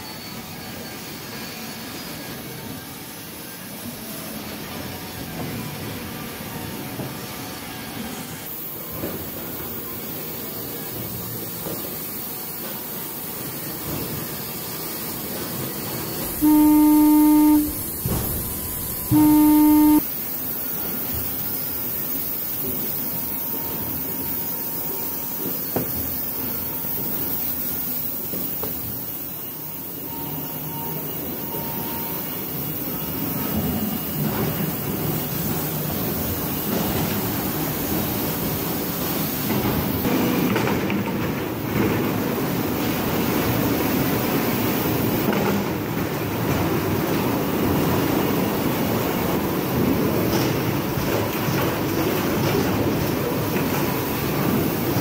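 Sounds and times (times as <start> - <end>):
loud low warning tone: 16.2 - 20.0.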